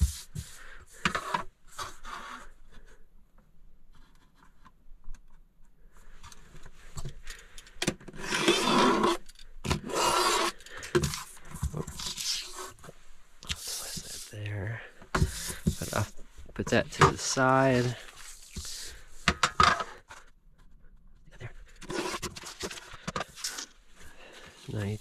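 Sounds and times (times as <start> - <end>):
utility knife cutting paper: 8.2 - 9.2, 9.8 - 10.5.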